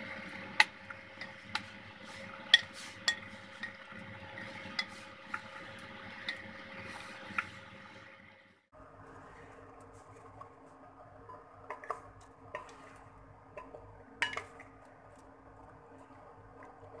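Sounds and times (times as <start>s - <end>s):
wooden spatula stirring food: 0.0s - 7.8s.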